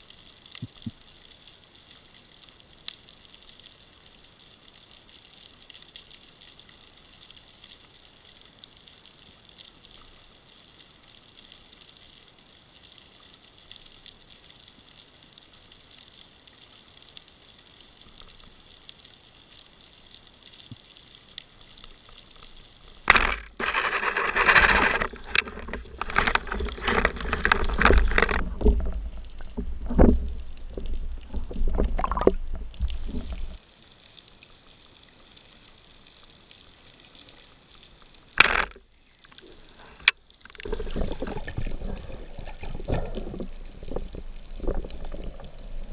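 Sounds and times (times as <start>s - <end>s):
sharp crack: 23.1s - 33.5s, 38.4s - 38.9s
turbulent water splashing: 23.1s - 33.6s
underwater knocks: 24.7s - 33.6s
underwater hiss: 39.0s - 45.9s.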